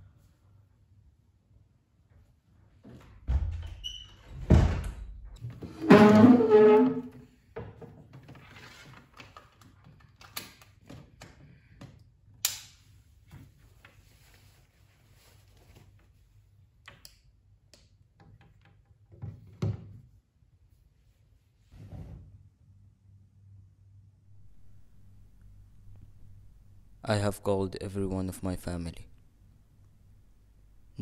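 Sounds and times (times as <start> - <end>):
drawn-out door sound: 3.3 - 7.2
door thud: 4.4 - 5.1.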